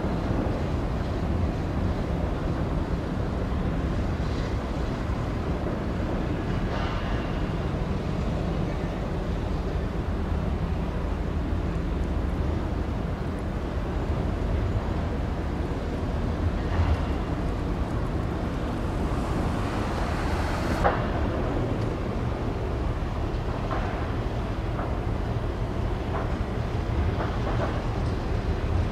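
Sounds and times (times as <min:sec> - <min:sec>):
ship engines droning: 0:04.7 - 0:26.1
churning wake hissing: 0:12.5 - 0:23.1.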